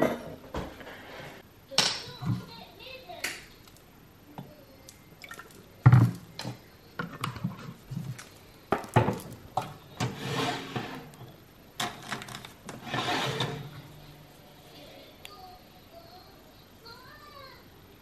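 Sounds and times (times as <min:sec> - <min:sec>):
rustling: 0:04.6 - 0:16.3.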